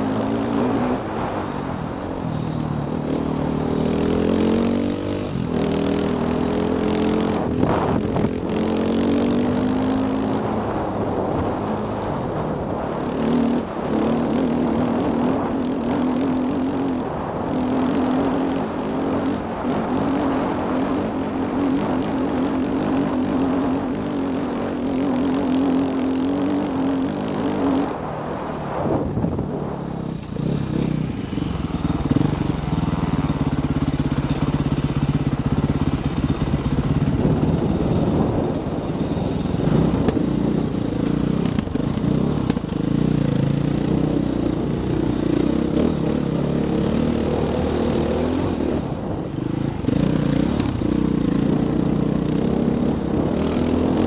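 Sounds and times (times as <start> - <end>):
dirt bike engine revving: 2.4 - 11.7, 30.2 - 54.0.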